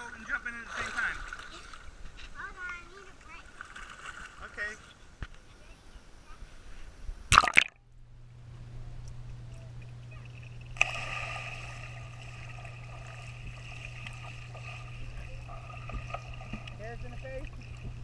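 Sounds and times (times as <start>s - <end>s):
camera splashing into water: 7.3s - 7.8s
muffled underwater hum: 8.0s - 18.0s
underwater bubbling rush: 10.5s - 18.0s.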